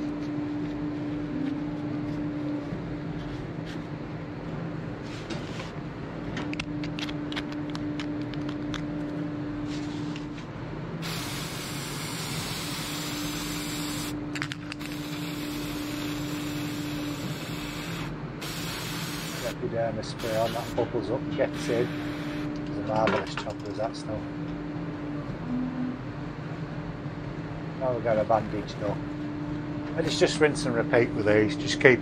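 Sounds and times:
steady low hum: 0.0 - 32.0
aerosol spray hissing: 11.0 - 14.1, 14.9 - 19.6, 20.2 - 20.7, 21.6 - 22.5.

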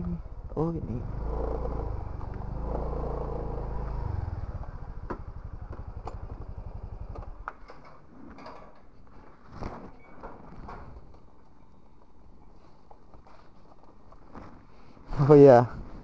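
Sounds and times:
motorcycle engine idling: 0.0 - 7.8.

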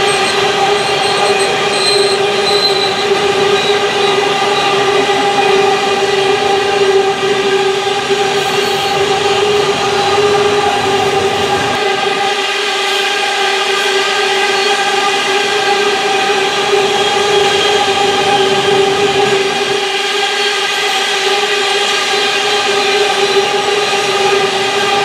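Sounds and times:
wheel squeal: 0.0 - 11.8.

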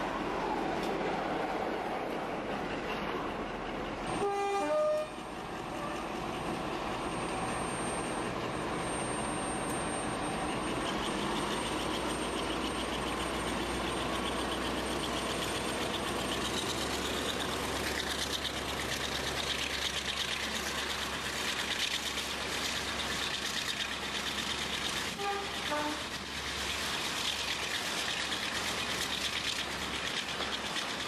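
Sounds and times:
train running on rails: 0.0 - 31.0
diesel locomotive horn: 4.1 - 6.1, 25.1 - 26.2.

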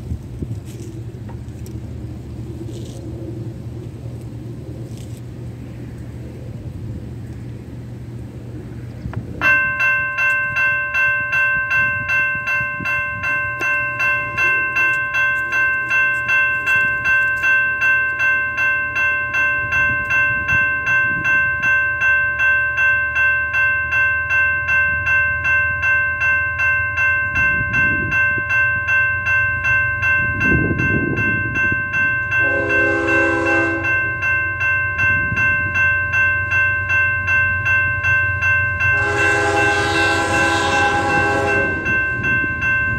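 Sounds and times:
railroad crossing bell ringing: 9.3 - 42.9
train horn blast: 32.4 - 34.1, 38.9 - 42.0.

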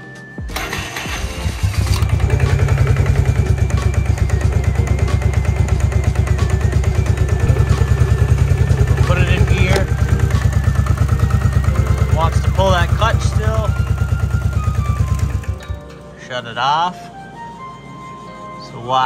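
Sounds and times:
atv engine idling: 0.6 - 15.8.

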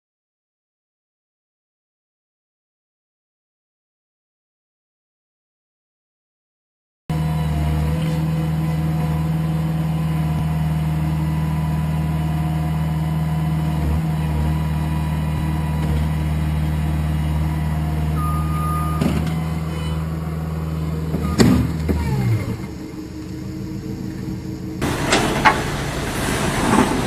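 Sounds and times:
diesel engine running: 7.1 - 27.0
short high beep: 18.1 - 20.0
loud crash and clatter: 24.8 - 27.0.

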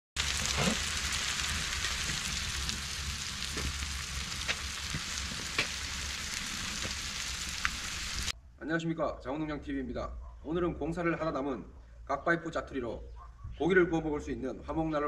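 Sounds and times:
pork sizzling on hot stove: 0.2 - 8.4
fat popping: 3.5 - 7.0.

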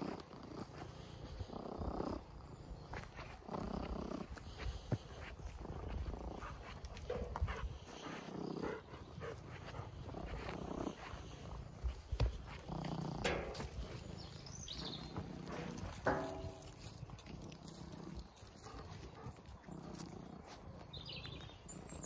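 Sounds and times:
cat purring: 0.0 - 22.0
small knocks and rustles: 11.9 - 14.1, 14.8 - 17.9.

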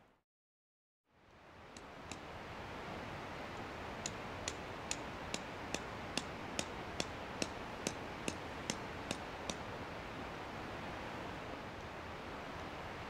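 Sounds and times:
constant hiss: 1.1 - 13.0
sharp ticking: 4.0 - 9.6.

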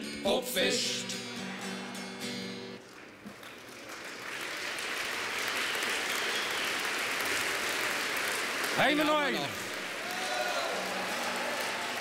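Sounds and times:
acoustic guitar chord strummed: 0.0 - 2.8
audience applause: 2.8 - 12.0.

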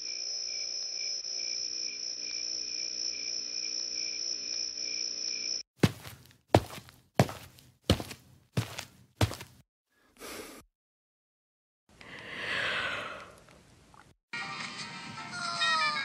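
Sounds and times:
crickets chirping: 0.0 - 5.6.

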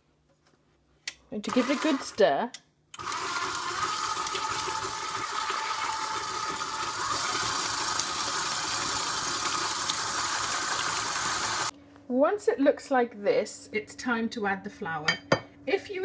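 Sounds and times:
stand mixer motor whining: 1.5 - 2.1, 3.0 - 11.7.

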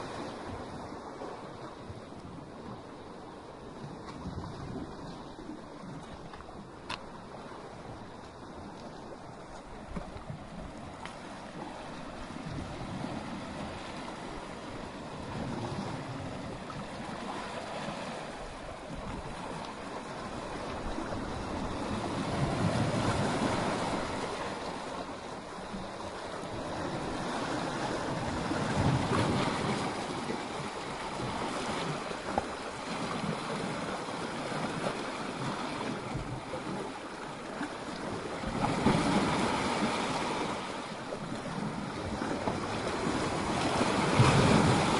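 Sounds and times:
surf crashing against rocks: 17.0 - 25.1, 38.2 - 44.9.

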